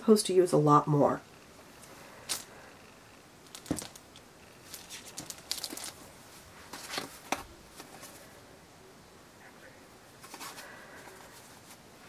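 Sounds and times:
yarn rustling: 3.4 - 8.4.

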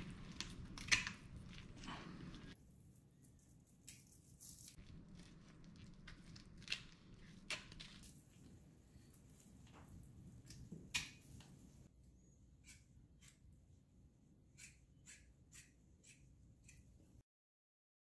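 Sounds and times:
kitchen shears snipping bones: 14.5 - 16.9.

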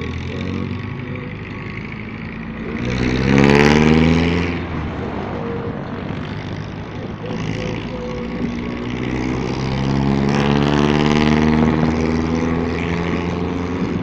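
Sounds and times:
motorcycle engine: 0.0 - 14.0
oncoming vehicle passing: 0.0 - 14.0.

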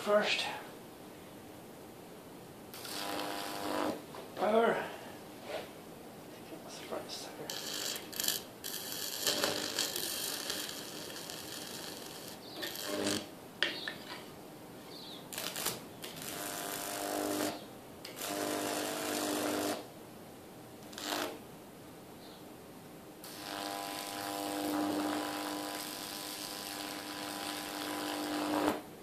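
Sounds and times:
electric arc crackling and buzzing: 2.7 - 4.6, 7.4 - 13.3, 15.3 - 19.9, 20.8 - 21.4, 23.2 - 28.9.

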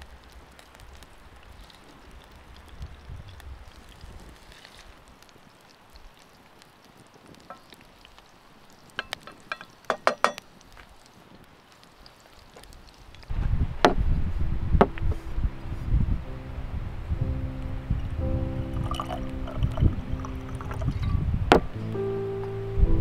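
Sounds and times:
meat frying in a pan: 0.0 - 13.6, 18.7 - 21.0
sharp crackles: 0.0 - 16.0, 16.9 - 22.6
loud low rumble: 13.4 - 22.1
music tones: 14.5 - 23.0.

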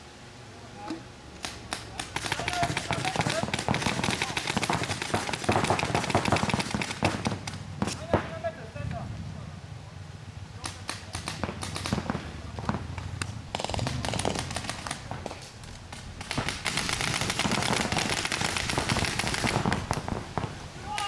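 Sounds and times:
paintball markers firing: 1.4 - 8.4, 10.6 - 20.2.

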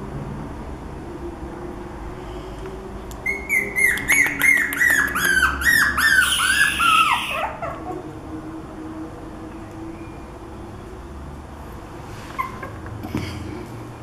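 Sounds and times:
puppy yipping: 3.2 - 8.0, 12.3 - 12.8
puppy whining: 3.2 - 8.2, 12.2 - 13.0.

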